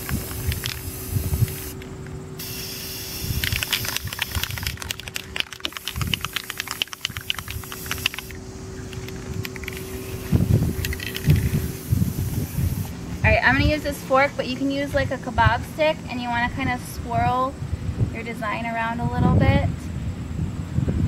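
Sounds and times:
crackly sputter: 0.0s - 12.8s
spray paint can hissing: 0.0s - 12.9s.

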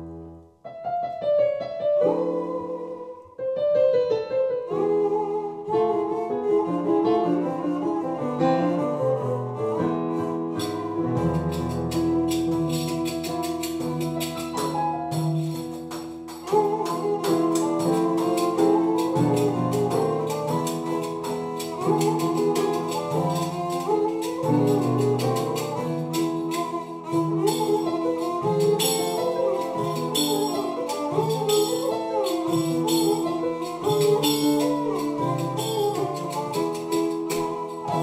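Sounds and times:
piano: 0.0s - 38.0s
bowed string melody: 2.0s - 3.4s, 4.0s - 38.0s.

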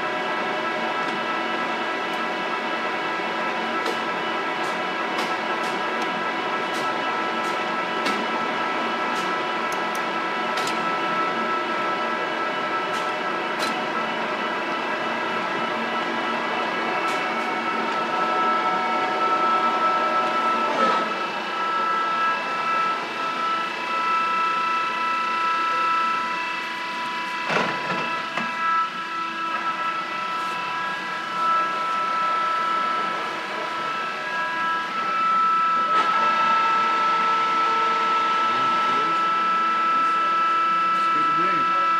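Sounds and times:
lathe gearing whine: 0.0s - 41.9s.

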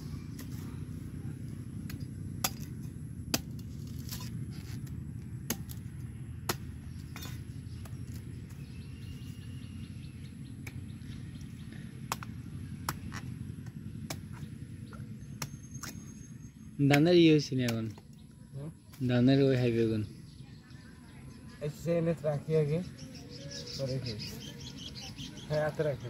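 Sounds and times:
machete chopping coconut husk: 0.2s - 9.2s, 10.6s - 10.9s, 11.9s - 16.2s, 16.8s - 18.2s.

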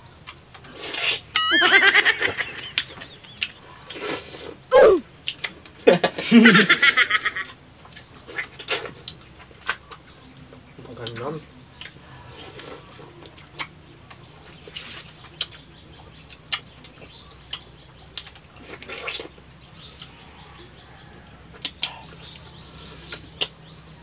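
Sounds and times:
wet sucking and slurping: 0.7s - 1.3s
mouth smacks and clicks: 5.2s - 5.8s.

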